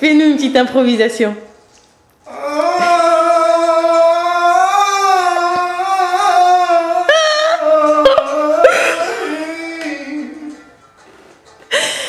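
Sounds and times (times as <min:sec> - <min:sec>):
man singing long held note: 0:02.3 - 0:10.6.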